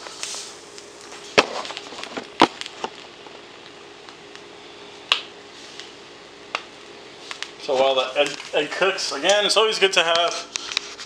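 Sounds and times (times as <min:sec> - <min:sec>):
sharp pops: 0:05.1 - 0:05.4.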